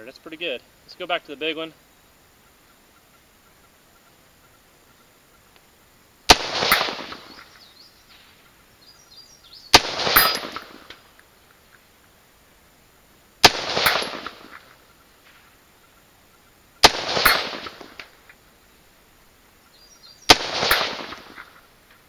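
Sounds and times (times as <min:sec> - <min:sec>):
bullet striking steel crack: 0:06.3 - 0:07.6, 0:09.7 - 0:11.2, 0:13.4 - 0:15.4, 0:16.8 - 0:18.2, 0:20.3 - 0:21.6
rifle shots: 0:06.3 - 0:07.6, 0:09.7 - 0:11.0, 0:13.4 - 0:14.7, 0:16.8 - 0:18.2, 0:20.3 - 0:21.6.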